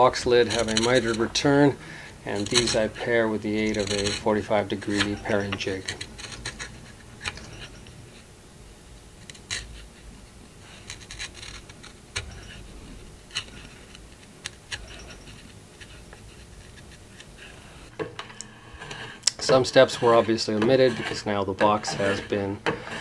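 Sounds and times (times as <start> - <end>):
chisel slicing through wood: 0.0 - 1.7, 2.3 - 7.7, 18.0 - 23.0.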